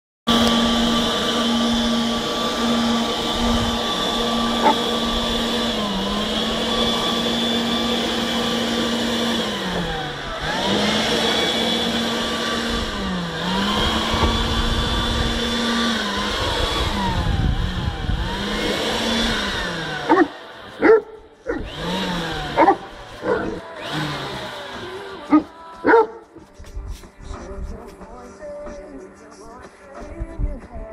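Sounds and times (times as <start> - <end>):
leaf blower running: 0.3 - 28.2
dog barking loudly: 4.4 - 5.0, 20.0 - 21.7, 22.5 - 23.6, 25.3 - 26.2.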